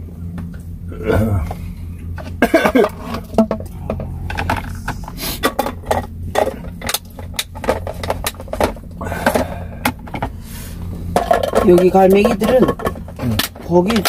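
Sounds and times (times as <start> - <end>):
steady low hum: 0.0 - 14.0
dishes clicking and knocking: 2.4 - 10.3, 11.1 - 14.0.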